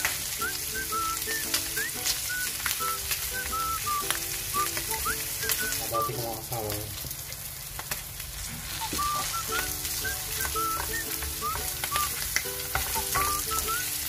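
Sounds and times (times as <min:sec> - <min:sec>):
meat sizzling in oil: 0:00.0 - 0:14.0
background music: 0:09.0 - 0:14.0.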